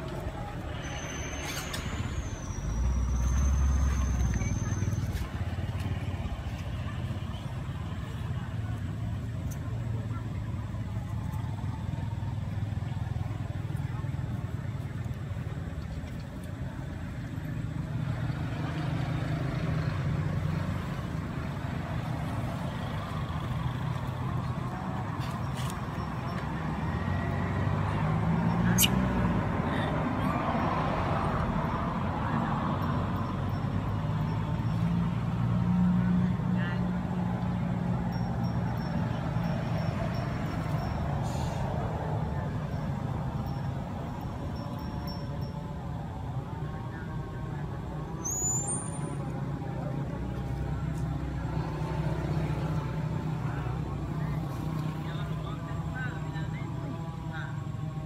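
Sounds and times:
vehicle engine rumbling: 0.0 - 58.0.

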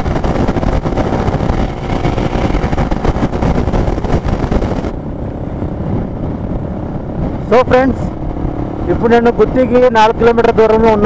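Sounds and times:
motorcycle engine rumble: 0.0 - 11.0
wind buffeting microphone: 0.0 - 11.0.

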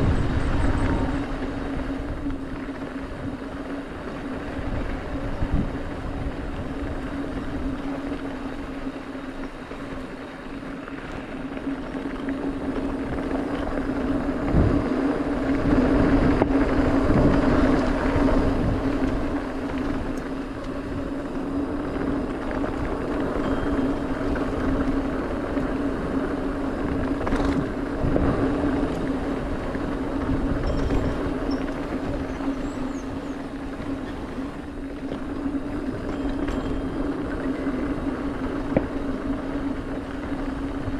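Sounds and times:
bike rolling hum: 0.0 - 40.9
wind rush: 0.0 - 40.9
bike thumps and rattles: 27.1 - 28.4.

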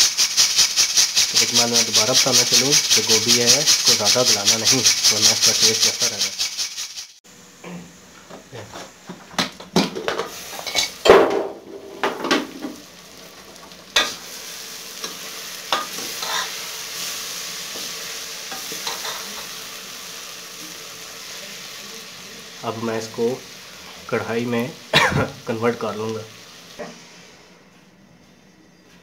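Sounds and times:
curry sizzling: 0.0 - 7.2, 9.8 - 27.5
metal spoon scraping pot: 15.0 - 16.6.

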